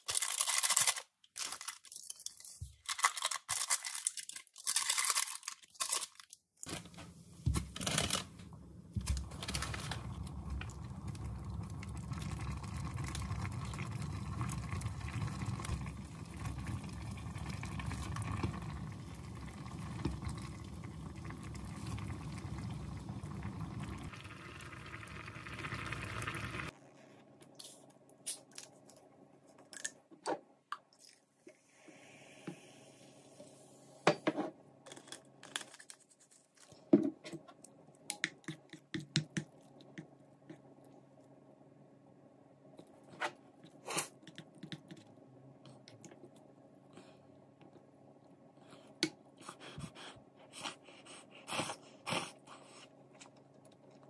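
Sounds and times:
broth boiling and bubbling: 8.8 - 26.8.

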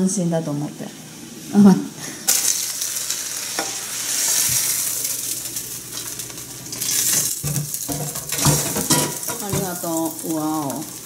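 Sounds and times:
oil sizzling in frying pan: 1.0 - 11.0
dull knocks of pan and plate: 7.4 - 9.7.

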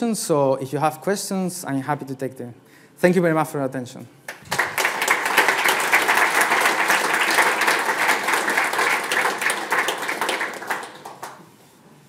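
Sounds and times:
audience applauding: 4.3 - 11.6.

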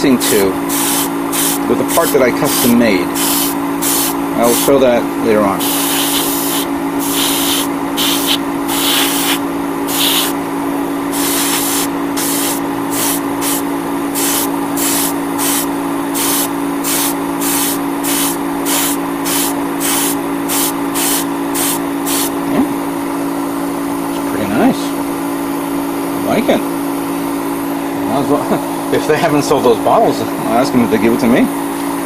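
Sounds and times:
steady low hum: 0.0 - 32.0
airbrush spraying hiss: 0.7 - 4.7, 5.6 - 10.4, 11.1 - 22.4.

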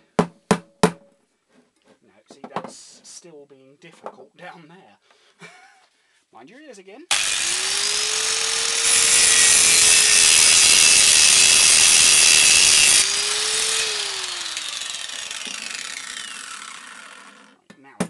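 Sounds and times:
angle grinder grinding steel: 7.1 - 17.6.

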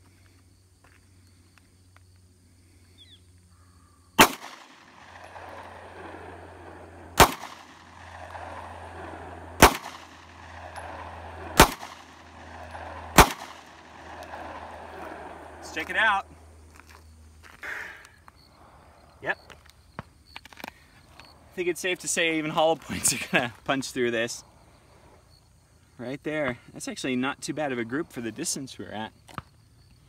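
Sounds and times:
pistol shots with echo: 4.2 - 15.6.

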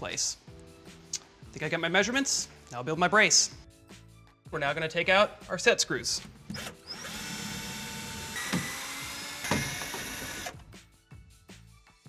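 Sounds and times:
cordless drill whining: 6.5 - 10.6.

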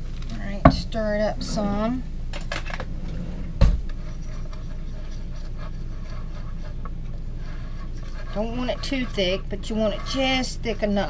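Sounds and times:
steady low hum: 0.0 - 11.0
utensil scraping a bowl: 3.0 - 11.0.

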